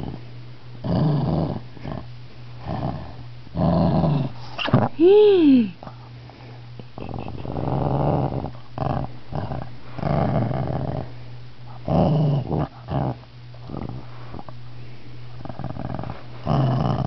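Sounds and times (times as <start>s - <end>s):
dog growling: 0.0s - 0.2s, 0.8s - 5.0s, 6.9s - 14.5s, 15.4s - 17.0s.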